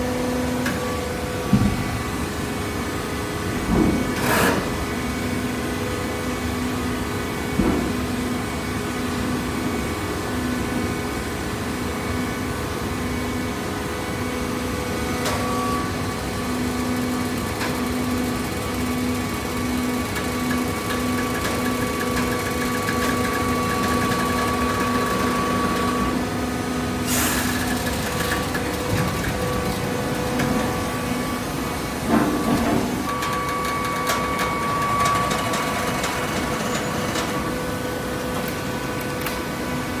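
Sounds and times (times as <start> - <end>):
motor and pump whining: 0.0 - 9.8, 10.5 - 40.0
baler machine hum: 15.8 - 40.0.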